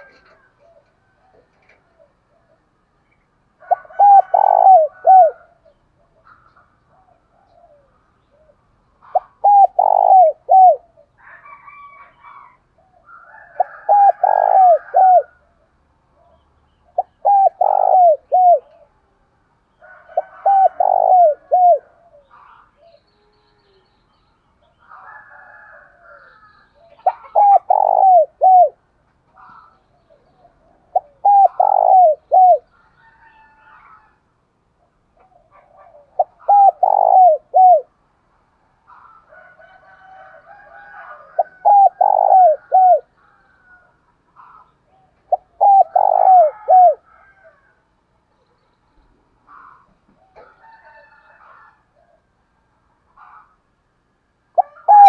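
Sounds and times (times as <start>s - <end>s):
dove cooing: 0.0s - 2.7s, 3.6s - 19.1s, 19.8s - 23.9s, 24.8s - 28.8s, 29.4s - 34.2s, 35.2s - 38.0s, 38.9s - 47.8s, 54.6s - 55.0s.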